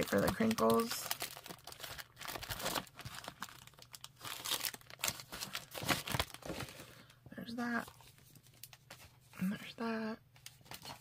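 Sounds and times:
packaging and bags crinkling: 0:00.0 - 0:07.1, 0:10.4 - 0:11.0.

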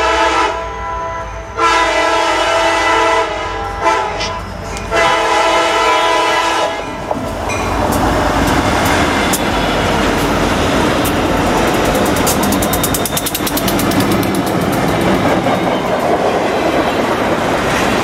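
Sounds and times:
locomotive horn blasts: 0:00.0 - 0:07.0
diesel locomotives rumbling past: 0:00.0 - 0:18.0
wheels clicking over rail: 0:07.0 - 0:18.0.

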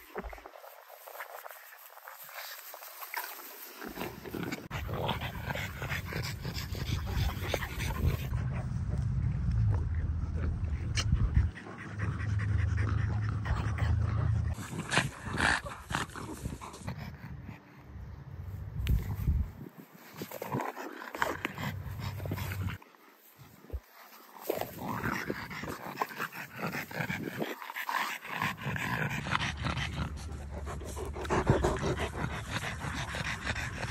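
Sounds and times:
dog panting: 0:04.7 - 0:09.0, 0:10.6 - 0:15.8, 0:20.8 - 0:33.9.

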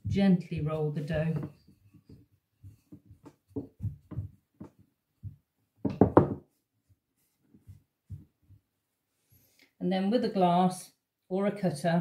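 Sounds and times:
rolling pin knocking on wooden board: 0:01.3 - 0:06.5.

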